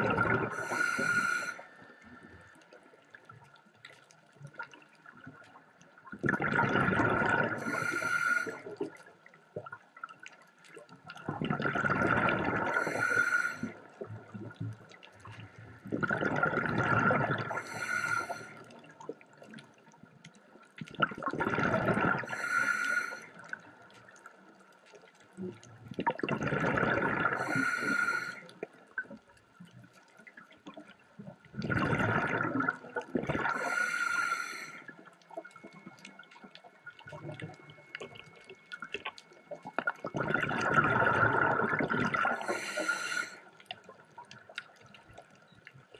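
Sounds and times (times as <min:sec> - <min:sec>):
exhaled bubbles gushing: 0:00.0 - 0:01.3, 0:06.1 - 0:09.0, 0:11.1 - 0:19.2, 0:20.8 - 0:22.6, 0:25.9 - 0:28.2, 0:31.4 - 0:33.9, 0:35.4 - 0:45.3
diver breathing through regulator: 0:00.2 - 0:02.0, 0:07.2 - 0:08.8, 0:12.2 - 0:13.8, 0:16.1 - 0:18.7, 0:22.0 - 0:23.4, 0:27.1 - 0:28.6, 0:33.4 - 0:35.0, 0:40.6 - 0:43.5.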